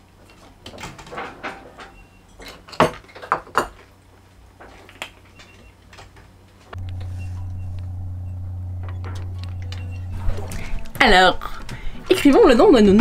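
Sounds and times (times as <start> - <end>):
faint low hum: 6.6 - 13.0.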